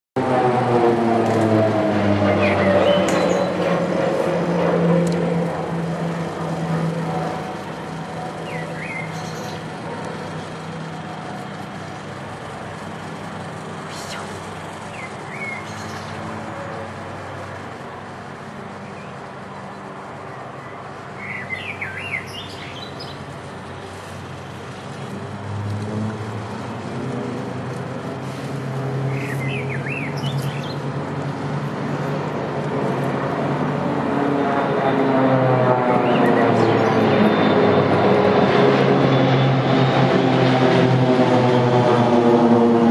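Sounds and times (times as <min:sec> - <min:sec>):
distant aircraft engine drone: 0:00.2 - 0:42.9
birds chirping: 0:02.3 - 0:03.8, 0:07.2 - 0:12.1, 0:13.7 - 0:25.0, 0:29.0 - 0:31.5.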